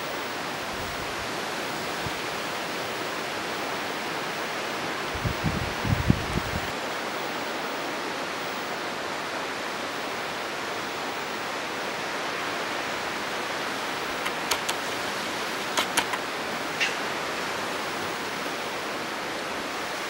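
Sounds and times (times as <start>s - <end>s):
sharp clicks: 14.1s - 17.0s.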